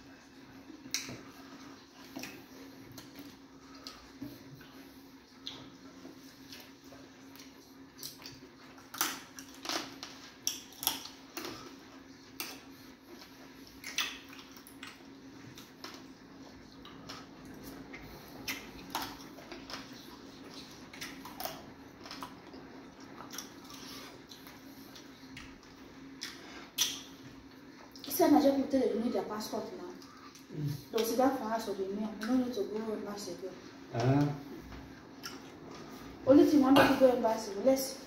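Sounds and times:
steady low hum: 0.0s - 38.0s
wet mouth smacks: 13.8s - 15.0s, 18.4s - 19.2s, 26.2s - 27.1s.

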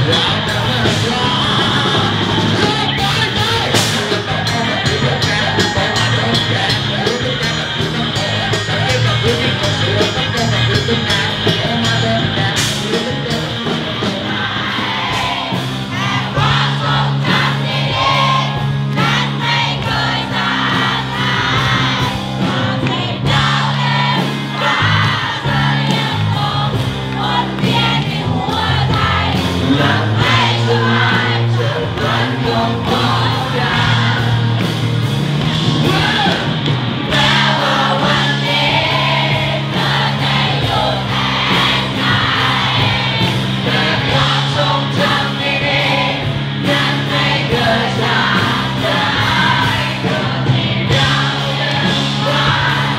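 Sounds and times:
crowd singing along: 0.0s - 52.9s
live band music: 0.0s - 52.9s
crowd shouting: 13.2s - 52.9s.

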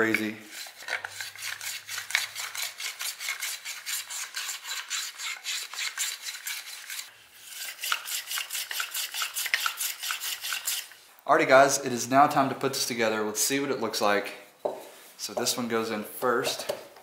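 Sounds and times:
hand plane scraping wood: 0.1s - 11.0s.

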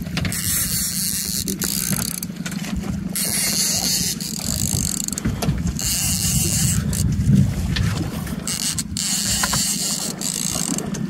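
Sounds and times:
outboard motor running: 0.0s - 11.0s
wind on microphone: 2.8s - 9.9s.

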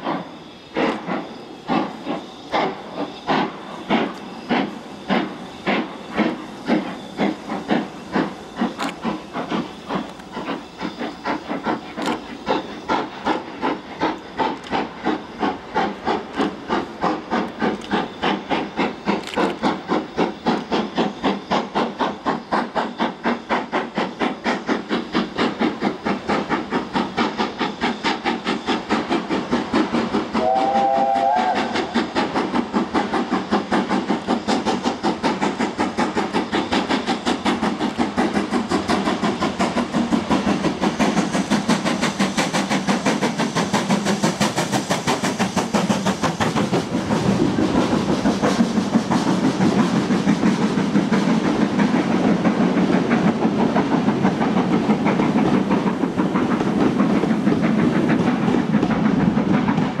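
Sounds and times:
steam locomotive exhaust beats: 0.0s - 60.0s
steam whistle: 30.4s - 32.0s.

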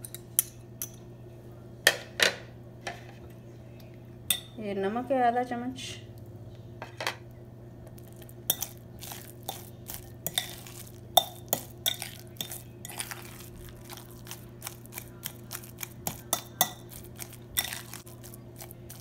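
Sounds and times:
fork clinking against glass bowl: 8.5s - 18.7s.

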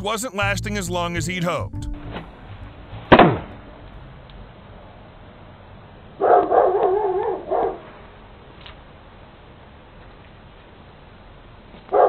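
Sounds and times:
short loud sound: 1.5s - 5.1s
dog barking: 6.2s - 7.9s.

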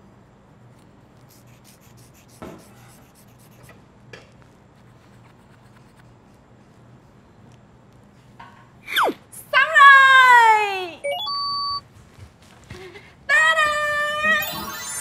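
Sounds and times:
pen scratching on paper: 1.2s - 3.8s.

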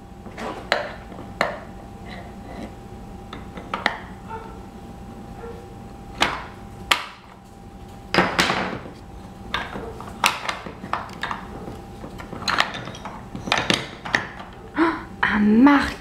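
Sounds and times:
wooden toy pieces clacking: 9.5s - 14.6s.

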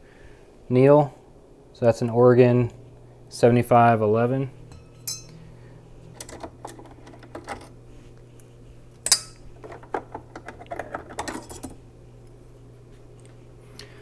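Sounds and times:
sharp metallic clink: 4.7s - 5.4s, 9.0s - 9.4s.

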